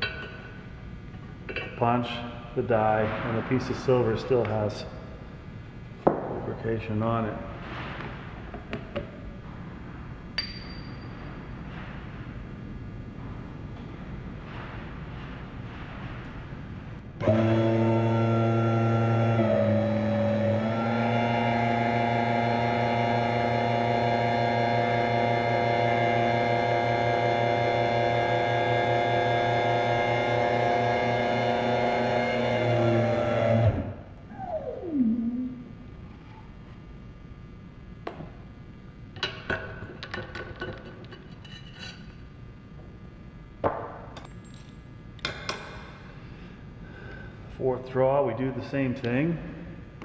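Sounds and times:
hydraulic pump motor humming: 17.2s - 35.6s.

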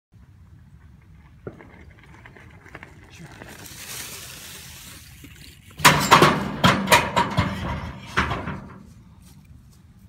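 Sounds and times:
bike crashing on metal guardrail: 5.8s - 8.7s.

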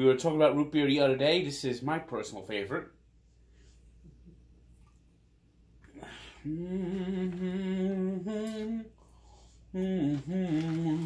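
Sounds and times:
man humming: 5.9s - 9.0s, 9.7s - 11.0s.

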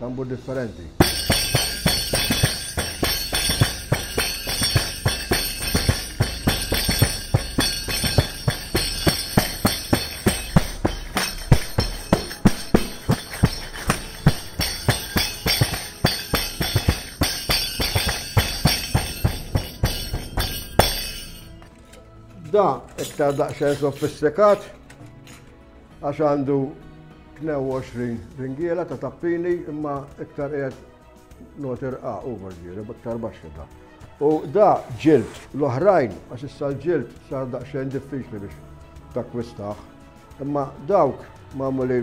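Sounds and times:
tambourine struck by hand: 1.0s - 21.7s.

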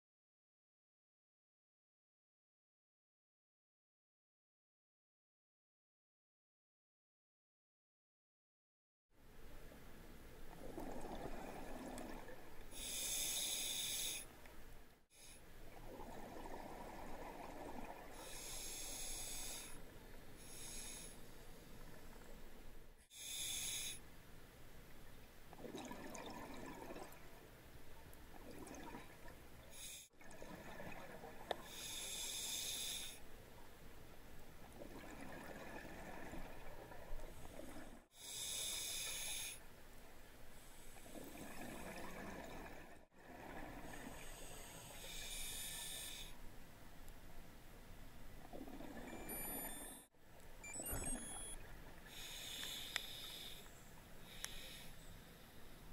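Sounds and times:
regulator hissing inhale: 12.7s - 14.4s, 18.2s - 19.8s, 20.4s - 21.5s, 23.1s - 24.0s, 29.7s - 30.1s, 31.6s - 33.3s, 37.4s - 39.7s, 43.9s - 46.4s, 52.1s - 55.6s.

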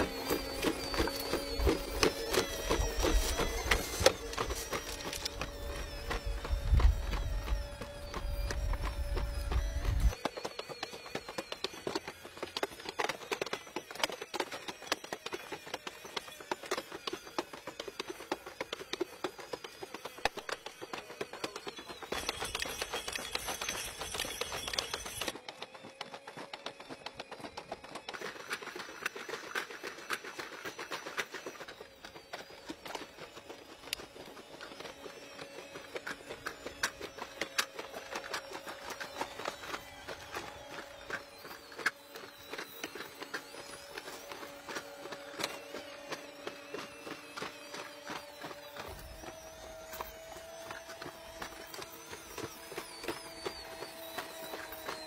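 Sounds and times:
robot mechanical whine: 0.0s - 55.0s.

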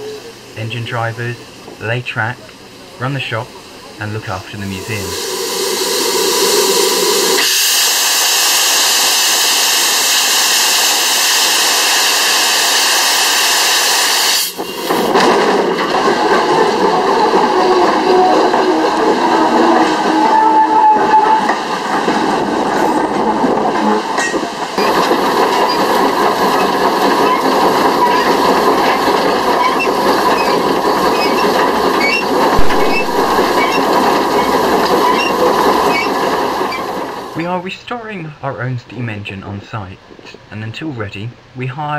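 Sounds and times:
locomotive steam hissing: 0.0s - 38.8s
locomotive running: 0.0s - 41.8s
sharp thump: 32.6s - 33.8s.

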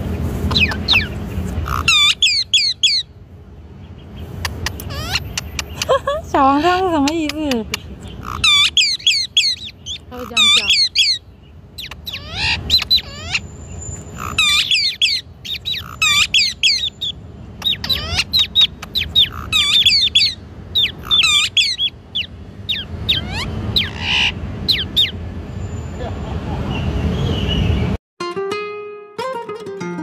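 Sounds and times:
parrots chirping and whistling: 0.4s - 3.2s, 4.2s - 6.0s, 6.6s - 25.2s.

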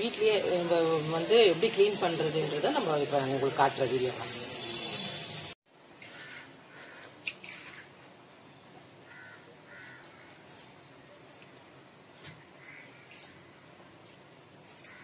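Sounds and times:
steady hiss: 0.0s - 5.6s
crow cawing: 6.1s - 7.1s, 9.1s - 10.4s, 12.6s - 13.3s.

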